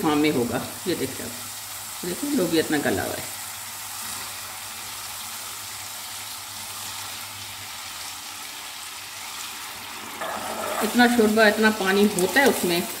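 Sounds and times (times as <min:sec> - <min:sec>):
masala sizzling in a pan: 0:00.0 - 0:13.0
beans ladled into pan: 0:09.5 - 0:13.0.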